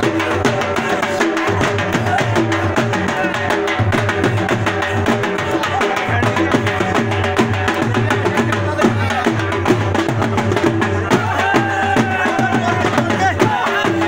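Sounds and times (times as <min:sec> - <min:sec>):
crowd voices: 0:00.0 - 0:14.0
fast drumming beat: 0:00.0 - 0:14.0.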